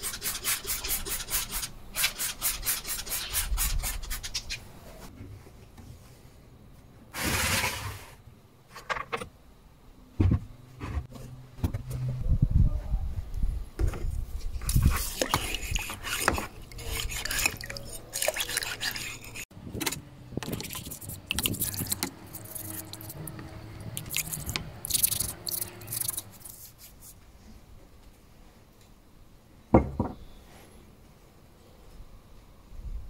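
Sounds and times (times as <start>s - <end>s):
brush scraping metal blades: 14.6s - 19.5s, 20.5s - 23.4s, 24.0s - 26.9s.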